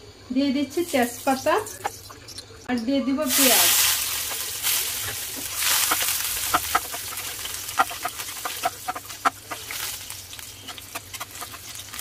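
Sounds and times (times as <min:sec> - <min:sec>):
onions sizzling in hot oil: 0:03.2 - 0:12.0.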